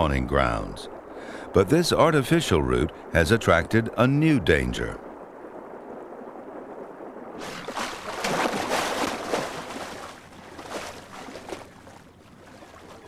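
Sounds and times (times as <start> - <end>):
water splashing: 5.3 - 13.0.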